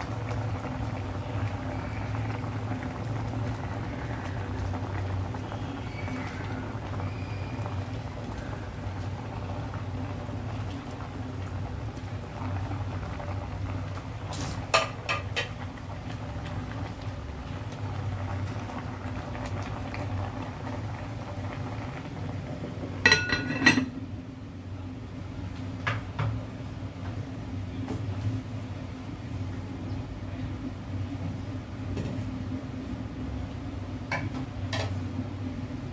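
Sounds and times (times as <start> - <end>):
soup boiling in a pot: 0.0 - 35.9
glass lid clinking on pot: 23.1 - 23.9.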